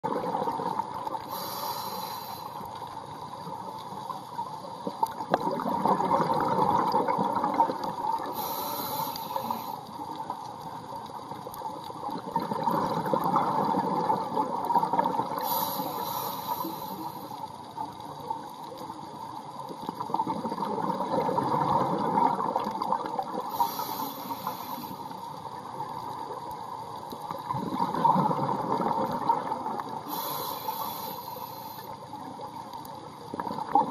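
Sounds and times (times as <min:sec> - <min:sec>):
bubbling exhale underwater: 0:00.0 - 0:01.6, 0:05.2 - 0:09.6, 0:12.1 - 0:17.0, 0:19.9 - 0:24.9, 0:27.3 - 0:31.1, 0:33.3 - 0:33.9
regulator hiss on inhale: 0:01.2 - 0:03.4, 0:08.1 - 0:10.2, 0:15.3 - 0:17.8, 0:23.4 - 0:25.5, 0:30.0 - 0:32.4.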